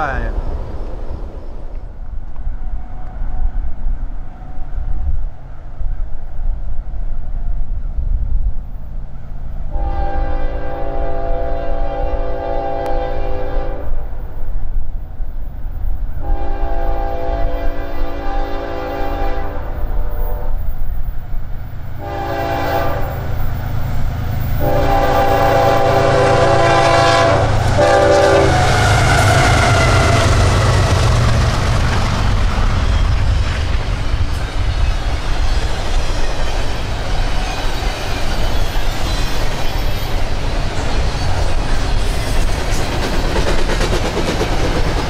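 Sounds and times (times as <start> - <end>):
locomotive horn blasts: 9.7 - 14.0, 16.2 - 20.6, 22.0 - 23.3, 24.6 - 29.6
locomotive engines passing: 19.7 - 45.0.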